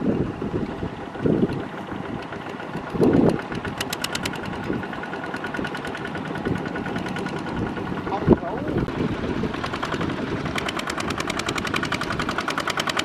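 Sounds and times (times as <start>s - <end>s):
diesel tractor engine running: 0.0s - 13.0s
rapid even ticking: 2.1s - 13.0s.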